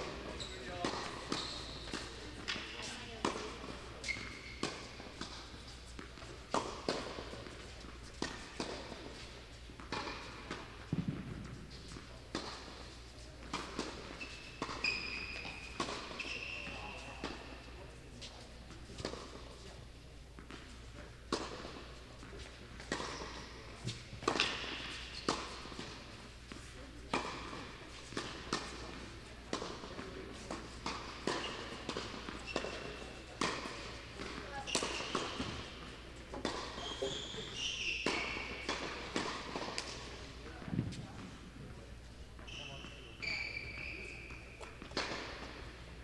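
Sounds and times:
shoes squeaking on court: 0.0 - 46.0
tennis ball struck and bouncing: 0.8 - 12.8, 13.4 - 16.3, 22.8 - 36.8, 38.0 - 40.9, 44.3 - 45.6.

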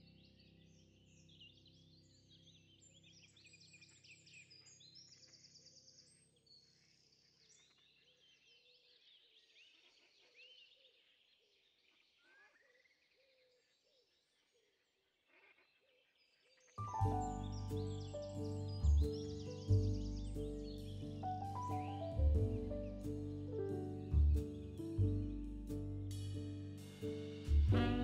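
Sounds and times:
birds chirping and whistling: 16.8 - 25.4
soft musical drone: 16.8 - 28.0.

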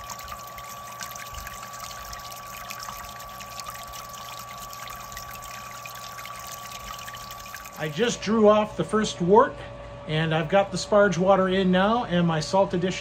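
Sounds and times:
liquid spraying and splashing: 0.0 - 8.0
thin steady whine: 0.0 - 13.0.

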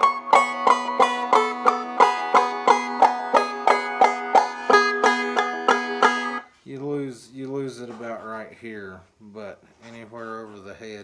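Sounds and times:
banjo played clawhammer style: 0.0 - 6.5.

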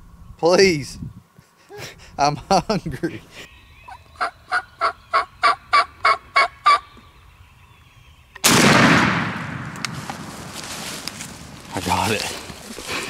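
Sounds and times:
wild turkey calling: 3.2 - 8.4
shotgun shot: 8.4 - 10.3.

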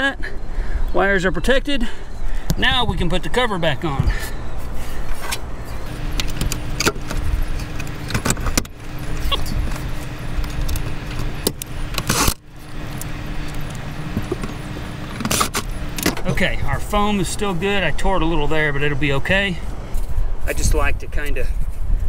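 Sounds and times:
wind rumble on microphone: 2.5 - 4.8, 19.3 - 22.0.

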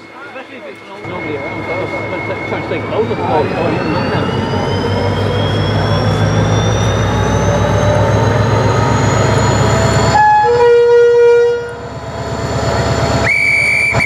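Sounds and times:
faint high whine: 0.0 - 8.9
diesel locomotive engine drone: 0.0 - 14.0
two-tone train horn: 10.1 - 11.9
short high-pitched whistle: 13.2 - 14.0.

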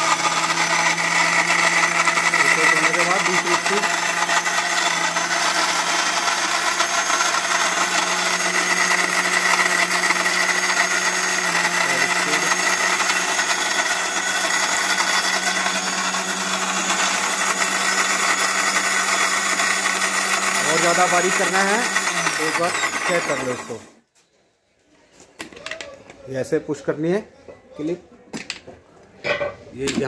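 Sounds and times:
mixer grinder whining: 0.0 - 24.0.

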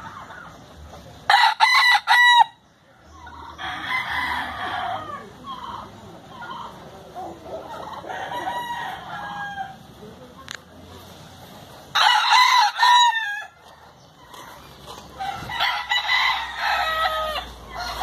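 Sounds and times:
rooster crowing: 1.3 - 2.6, 3.6 - 5.3, 7.9 - 9.8, 11.9 - 13.6, 15.2 - 18.0
faint fowl calls: 1.3 - 9.9.

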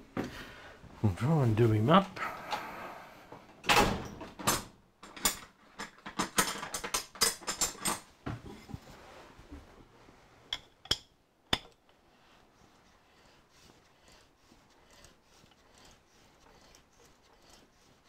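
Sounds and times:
metal parts clicking and knocking: 4.4 - 8.1.

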